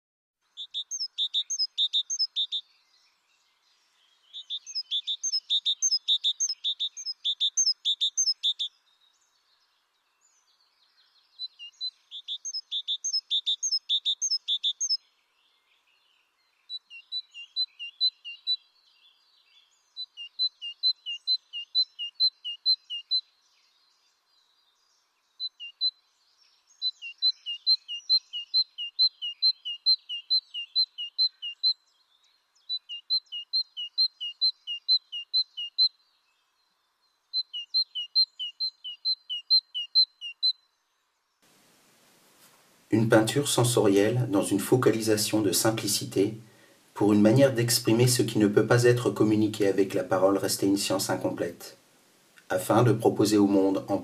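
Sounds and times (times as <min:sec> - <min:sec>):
small bird chirping rapidly: 0:00.4 - 0:41.5.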